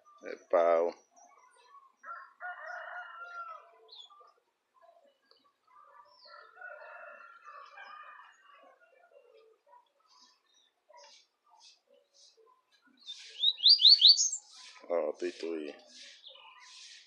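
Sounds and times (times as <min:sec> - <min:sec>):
lower bird calls: 0:13.0 - 0:14.8
seedeaters chirping: 0:13.0 - 0:17.0.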